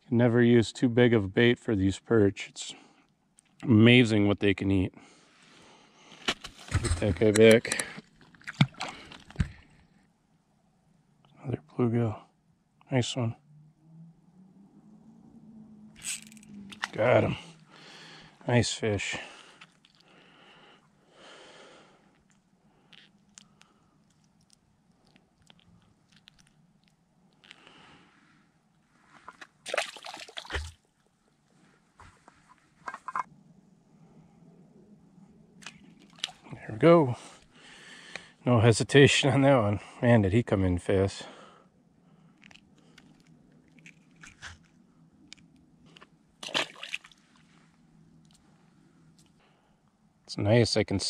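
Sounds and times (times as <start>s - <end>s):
fish crunching and slapping on ice: 6.2s - 9.8s, 29.2s - 30.9s.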